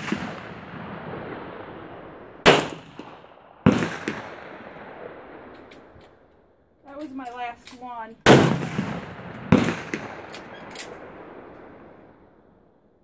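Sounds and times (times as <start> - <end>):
pistol shots: 0.0 - 1.0, 2.4 - 4.9, 8.2 - 11.6.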